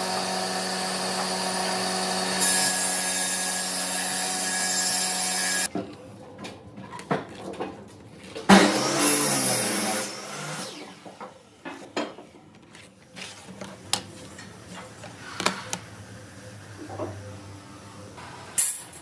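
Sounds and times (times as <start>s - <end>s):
power tool winding down: 0.0s - 2.7s.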